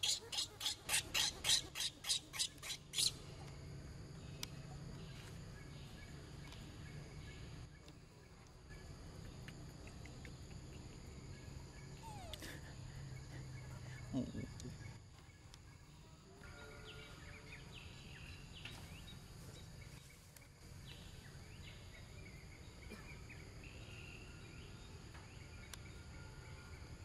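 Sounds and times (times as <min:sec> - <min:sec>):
baby monkey screaming: 0:00.0 - 0:03.1
low steady background hum: 0:00.0 - 0:27.0.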